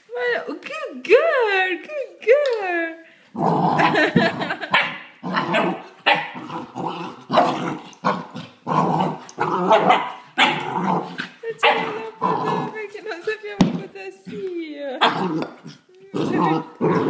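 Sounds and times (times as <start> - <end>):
puppy play-growling: 3.3 - 13.3, 15.0 - 17.0.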